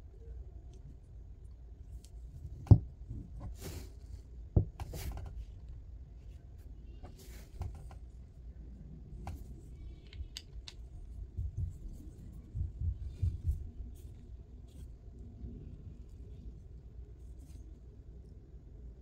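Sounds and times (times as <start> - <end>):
flashlight handling clicks and scrapes: 9.3 - 11.2.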